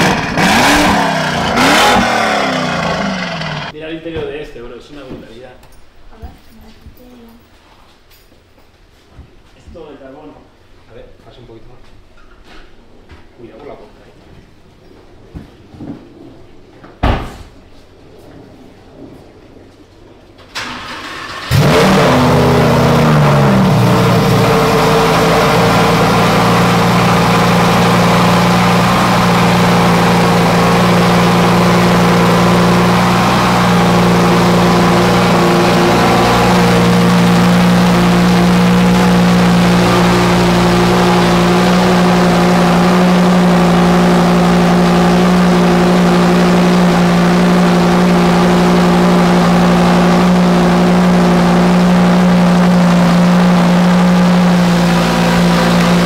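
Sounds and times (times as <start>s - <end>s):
car engine starting and idling: 0.0s - 3.8s, 20.2s - 56.0s.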